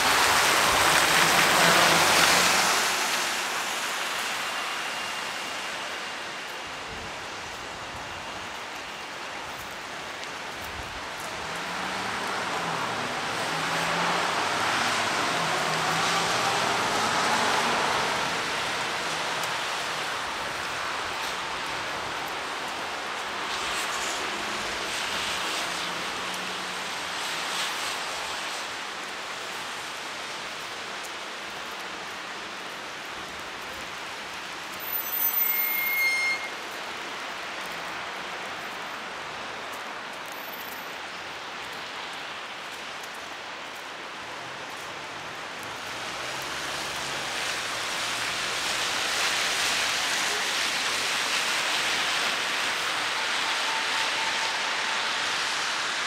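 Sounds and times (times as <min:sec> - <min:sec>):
heavy rain falling: 0:00.0 - 0:56.0
brief high-pitched tone: 0:35.2 - 0:36.6.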